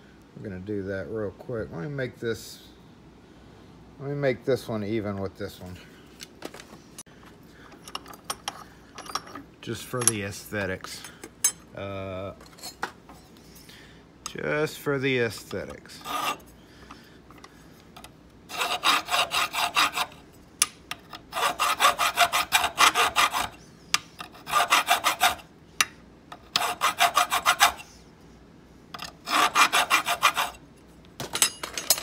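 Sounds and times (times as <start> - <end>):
hand file rasping on metal: 16.0 - 16.5, 18.5 - 20.2, 21.3 - 23.6, 24.2 - 25.5, 26.4 - 27.9, 29.0 - 30.6.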